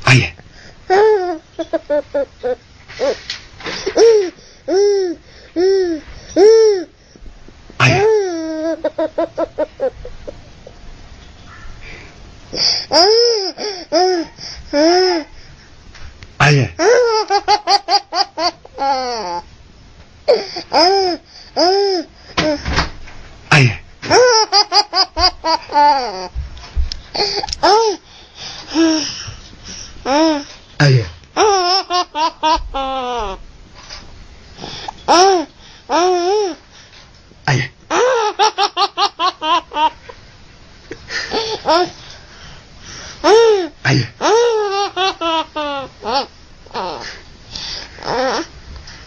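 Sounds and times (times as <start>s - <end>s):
baby laughing: 0.9s - 3.2s, 7.8s - 10.4s, 12.9s - 15.3s, 16.8s - 19.5s, 20.3s - 22.6s, 24.0s - 26.4s, 27.2s - 28.0s, 31.4s - 33.4s, 35.1s - 36.6s, 37.9s - 40.2s, 41.1s - 42.0s, 43.2s - 47.2s.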